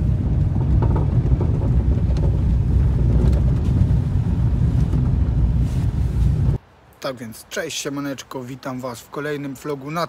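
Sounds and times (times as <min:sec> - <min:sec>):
car engine and tyres rumbling: 0:00.0 - 0:06.6.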